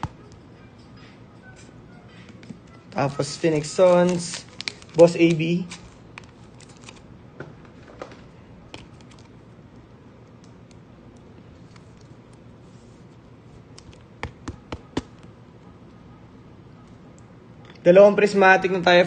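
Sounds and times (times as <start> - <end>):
electric fan hum: 0.0 - 19.0
trading cards clicking and tapping: 13.7 - 15.2.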